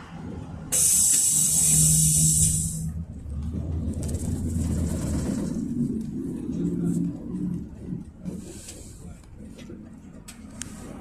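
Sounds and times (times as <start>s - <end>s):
bus engine rumbling: 0.0s - 11.0s
air release hiss: 0.7s - 2.9s.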